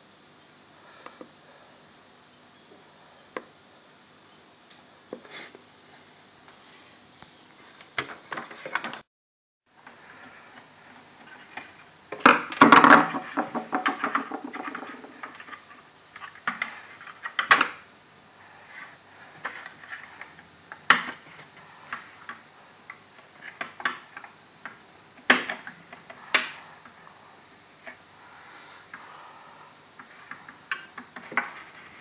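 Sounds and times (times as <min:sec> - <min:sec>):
plastic casing rattling and scraping: 0:10.2 - 0:17.8.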